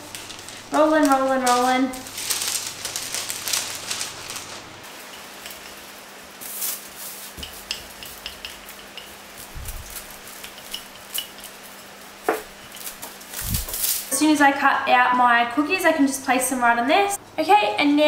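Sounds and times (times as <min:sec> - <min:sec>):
baking paper rustling: 0:00.0 - 0:14.1.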